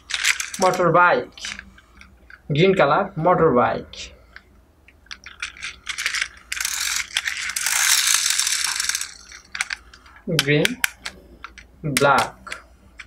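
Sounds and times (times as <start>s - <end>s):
toy wheel gearing ratcheting: 0.0s - 1.6s, 5.1s - 12.6s.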